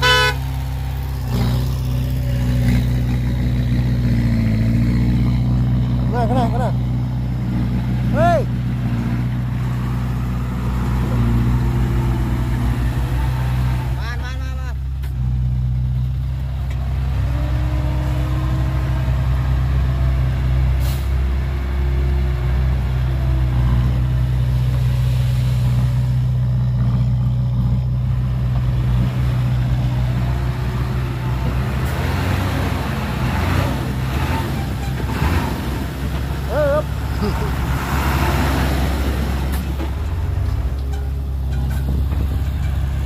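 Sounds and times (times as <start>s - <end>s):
diesel truck engine running: 0.0s - 43.0s
rattles and knocks: 39.5s - 43.0s.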